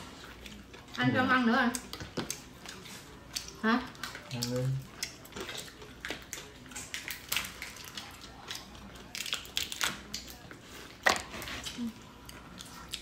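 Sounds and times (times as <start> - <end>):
shellfish shells cracking: 3.4 - 10.4.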